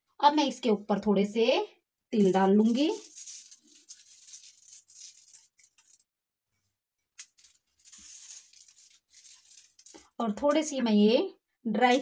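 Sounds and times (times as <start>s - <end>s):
seeds sprinkled on plastic sheet: 2.2s - 6.1s, 7.2s - 10.2s.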